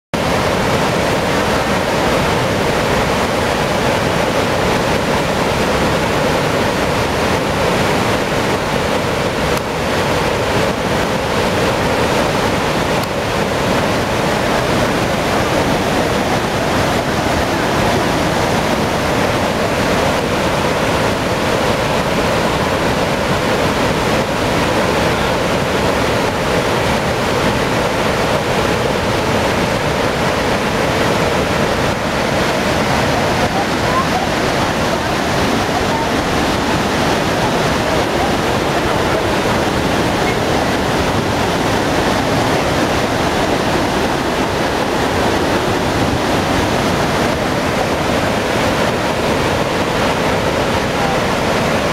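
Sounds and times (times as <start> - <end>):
rushing roar of white water: 0.1 - 51.9.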